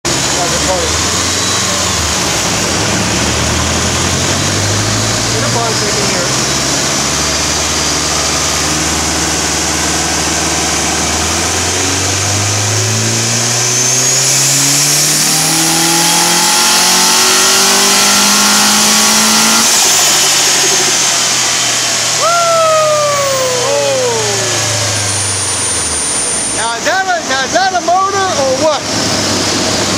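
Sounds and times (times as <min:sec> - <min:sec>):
car engine idling and revving: 0:00.0 - 0:29.9
turbo whistle: 0:22.0 - 0:26.7.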